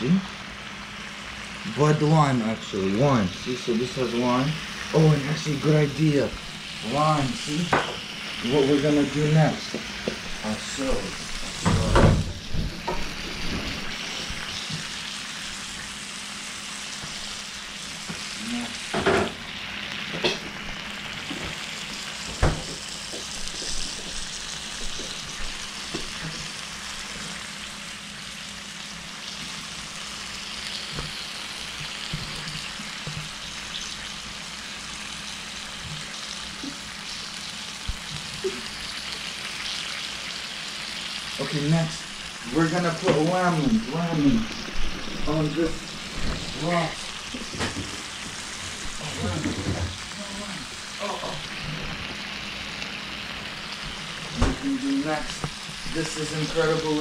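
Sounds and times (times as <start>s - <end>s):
beer sizzling on a hot grill: 0.0s - 57.0s.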